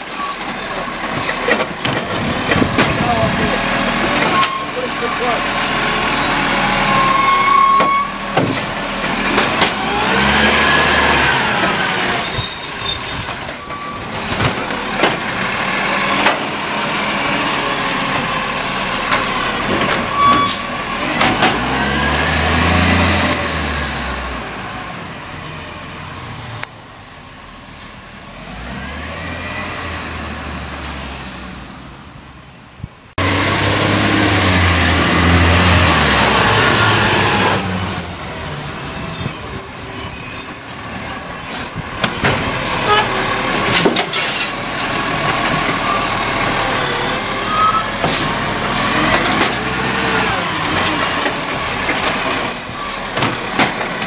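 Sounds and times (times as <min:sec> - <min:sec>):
garbage truck diesel engine revving: 0:00.4 - 0:26.0, 0:28.2 - 0:31.8, 0:33.2 - 0:54.0
truck driving past: 0:05.2 - 0:12.1, 0:27.8 - 0:32.0, 0:33.2 - 0:38.9.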